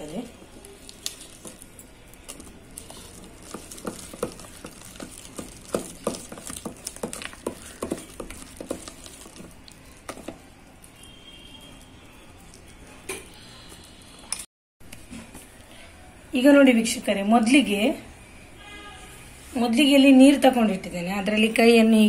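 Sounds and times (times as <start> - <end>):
hand beating batter in bowl: 0.9 - 10.5.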